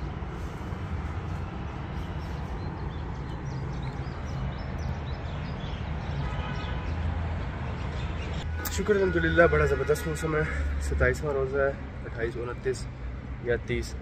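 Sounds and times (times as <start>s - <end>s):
street traffic rumble: 0.0s - 14.0s
small birds chirping: 0.4s - 8.5s.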